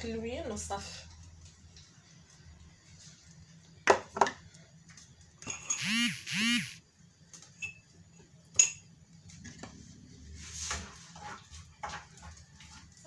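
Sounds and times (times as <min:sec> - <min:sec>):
wooden spoon scraping frying pan: 0:10.3 - 0:13.0.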